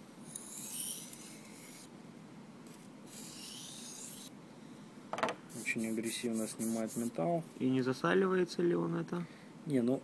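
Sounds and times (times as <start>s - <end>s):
knife sharpening on whetstone: 3.1s - 4.3s.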